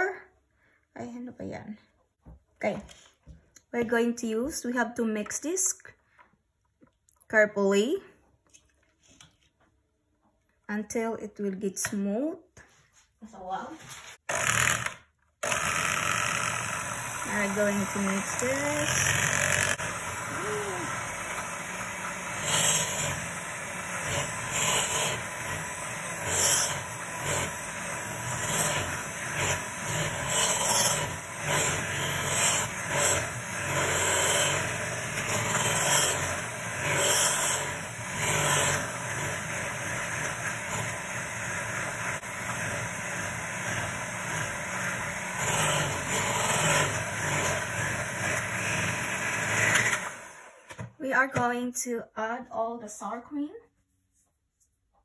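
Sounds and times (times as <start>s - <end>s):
electric hand mixer running: 14.3s - 50.7s.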